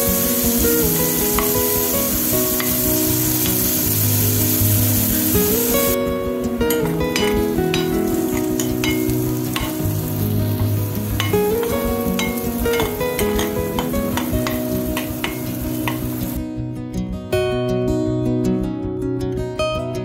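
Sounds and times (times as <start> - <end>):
steel spoon scraping a pan: 0.0 - 6.0, 6.7 - 16.4
onions sizzling in hot oil: 0.0 - 16.4.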